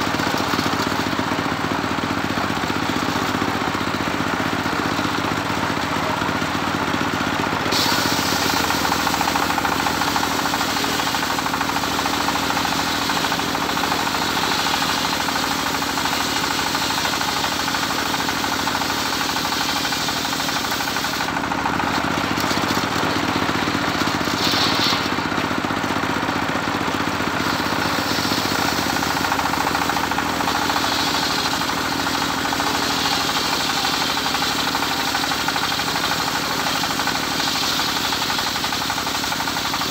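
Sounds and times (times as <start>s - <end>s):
circular saw bench running: 0.0s - 39.9s
saw blade hissing through wood: 7.6s - 21.4s, 22.6s - 25.6s, 27.3s - 39.9s.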